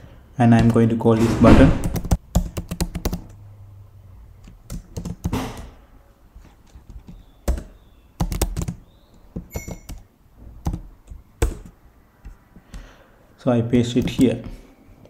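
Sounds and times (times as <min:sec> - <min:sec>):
keyboard typing: 0:01.6 - 0:03.4, 0:04.4 - 0:05.8, 0:06.4 - 0:12.9, 0:13.9 - 0:14.5.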